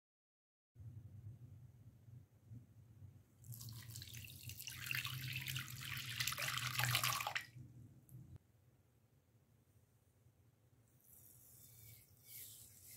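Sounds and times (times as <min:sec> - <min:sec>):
milk pouring into glass bowl: 0:03.4 - 0:07.5.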